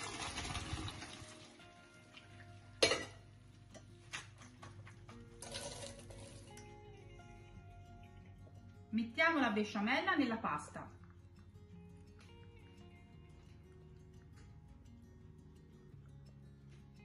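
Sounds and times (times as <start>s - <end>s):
water draining through colander: 0.0s - 2.4s
soft background music: 0.0s - 17.0s
metal colander clank: 2.8s - 3.2s.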